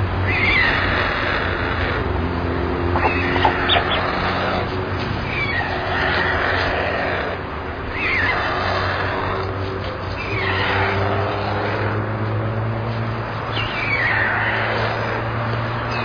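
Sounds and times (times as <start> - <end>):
faint clicks: 3.0 - 4.1
bird chirps: 3.0 - 4.3.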